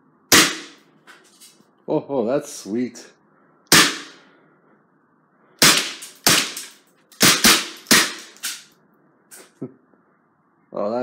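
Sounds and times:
pistol shots: 0.3 - 0.8, 3.7 - 4.2, 5.6 - 8.6.

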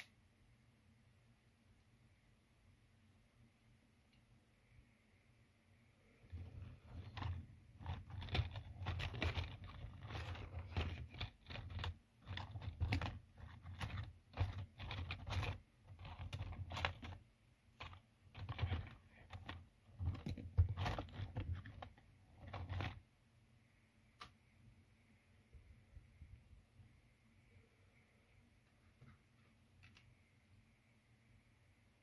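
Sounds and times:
plastic clicks and scrapes: 6.3 - 17.2, 17.8 - 23.0.

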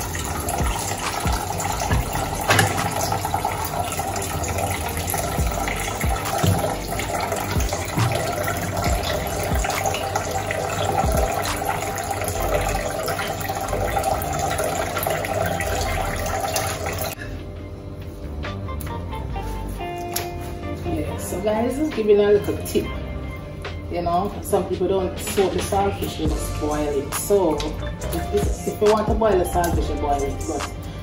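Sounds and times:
water running from tap into sink: 0.0 - 17.2
knocks of dishes being rinsed: 0.6 - 3.3, 5.4 - 6.9, 7.6 - 9.8.

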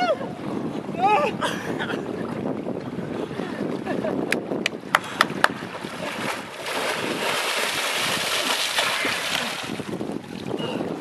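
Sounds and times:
water splashing from wading: 4.8 - 10.5.

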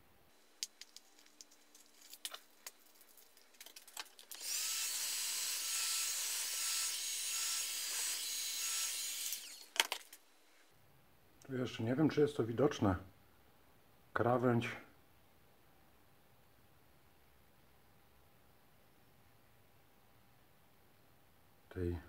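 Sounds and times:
parts clicking and knocking: 0.6 - 4.4, 9.7 - 10.2
power tool grinding steel: 4.4 - 9.7.

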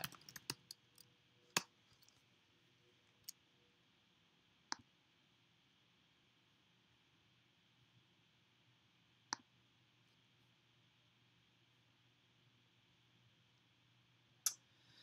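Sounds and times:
computer mouse clicks: 0.0 - 0.8.

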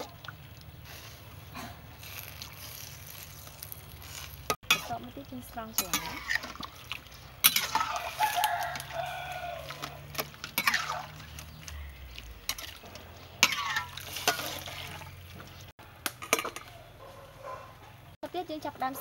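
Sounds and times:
water boiling and bubbling: 0.0 - 16.6
rooster crowing: 7.9 - 10.1.

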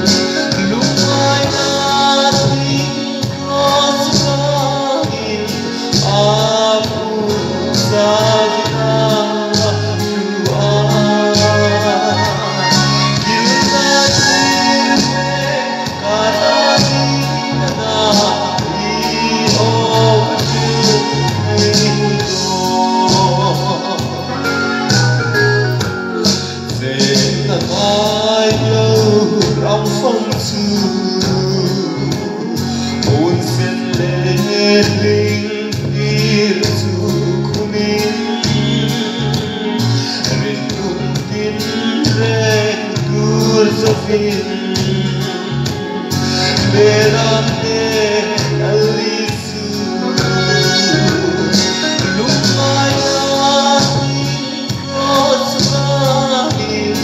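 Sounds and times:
steady bass beat: 0.0 - 32.4
instrumental accompaniment: 0.0 - 57.0.

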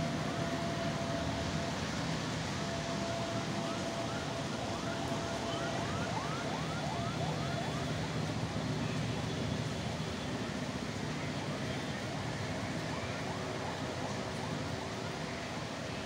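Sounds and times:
siren whooping: 2.6 - 8.3, 12.5 - 15.8.

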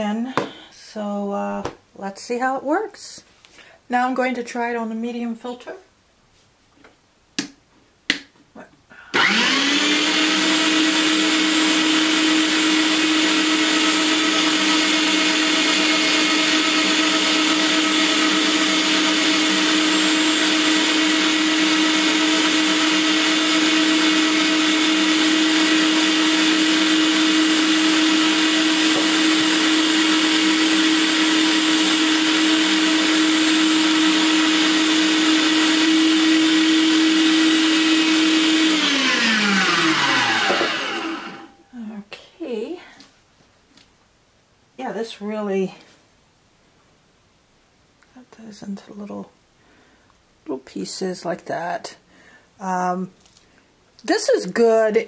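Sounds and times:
meat grinder motor whining: 9.1 - 41.6.

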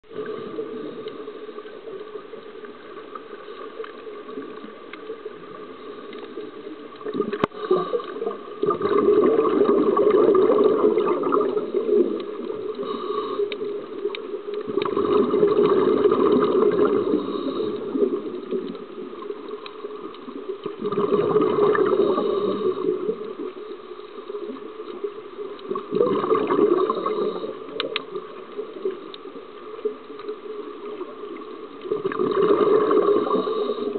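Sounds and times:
underwater hiss: 0.1 - 20.0, 21.0 - 24.9, 26.0 - 29.0, 32.0 - 33.9
regulator exhaust bubbles: 14.7 - 17.4.

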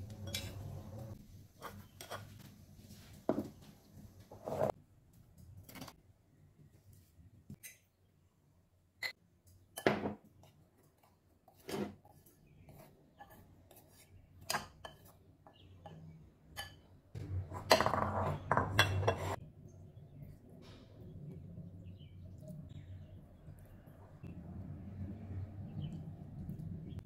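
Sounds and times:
spoon clattering and scraping: 0.1 - 2.3, 15.9 - 19.4
metal spoon clinking on glass: 0.2 - 0.6.

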